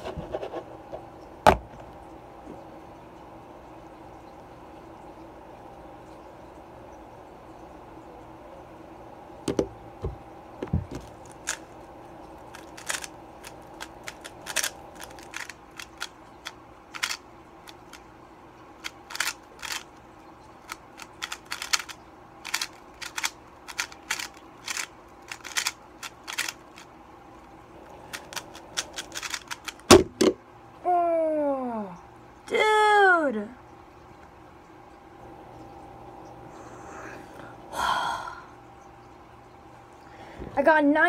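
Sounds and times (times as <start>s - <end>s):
plastic cube clicking: 12.5s - 17.8s, 18.8s - 19.8s, 20.7s - 26.8s, 28.1s - 30.0s.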